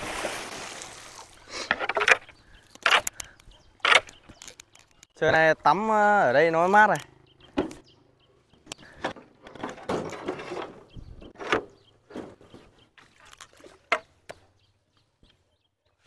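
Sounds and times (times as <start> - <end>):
water splashing and sloshing: 0.0 - 3.2, 12.0 - 14.9.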